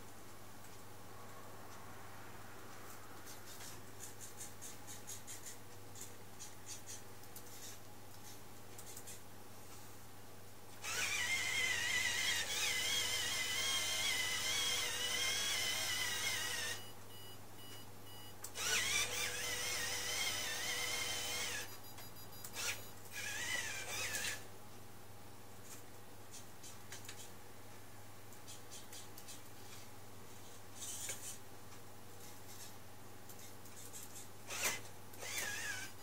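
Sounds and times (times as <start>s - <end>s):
small electric motors whining: 10.8s - 16.8s, 18.6s - 21.7s, 22.5s - 24.4s, 34.5s - 36.0s.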